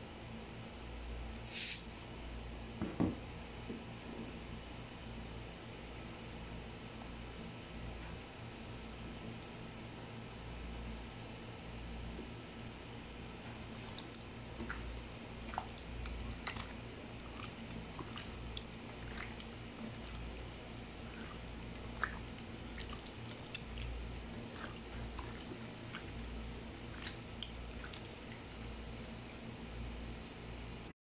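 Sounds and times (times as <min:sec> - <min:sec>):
low background hum: 0:00.0 - 0:30.9
hands squelching raw chicken: 0:13.7 - 0:28.6.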